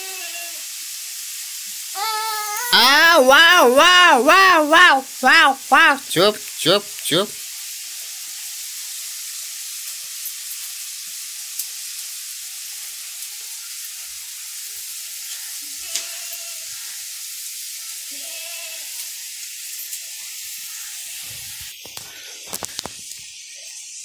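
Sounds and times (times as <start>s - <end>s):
steady high hiss: 0.0s - 16.2s.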